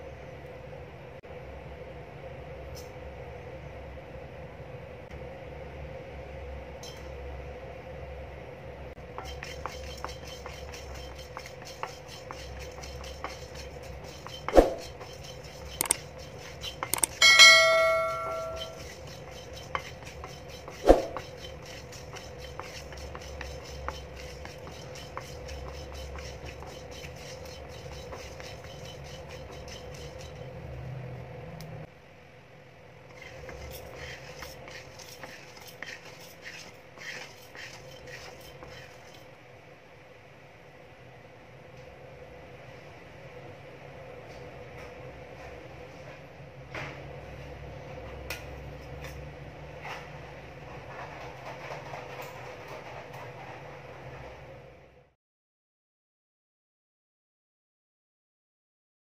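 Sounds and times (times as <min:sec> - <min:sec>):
steady low hum: 0:00.0 - 0:50.7
spatula scraping and rattling spices: 0:09.0 - 0:30.9, 0:33.1 - 0:39.3, 0:50.6 - 0:54.2
metallic clang ringing: 0:17.0 - 0:18.8.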